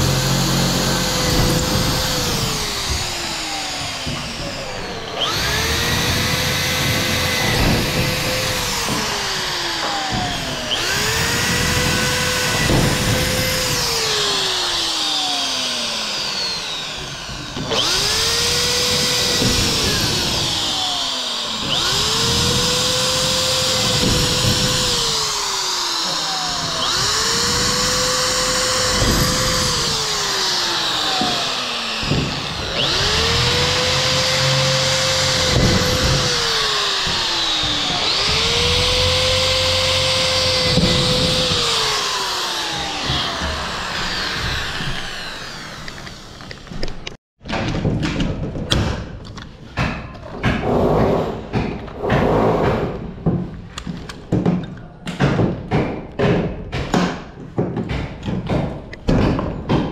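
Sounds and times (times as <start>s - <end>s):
electric drill whining: 0.0s - 47.2s.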